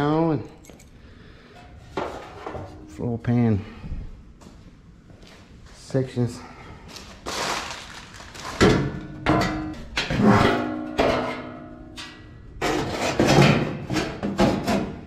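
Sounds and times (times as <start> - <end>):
steel panel clanging and scraping: 8.7 - 15.0.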